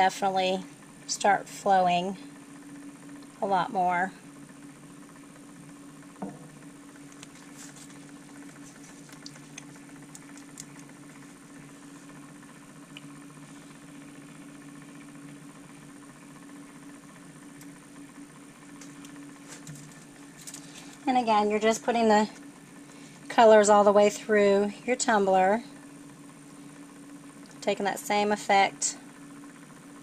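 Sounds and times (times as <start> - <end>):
small electric motor humming: 0.0 - 30.0.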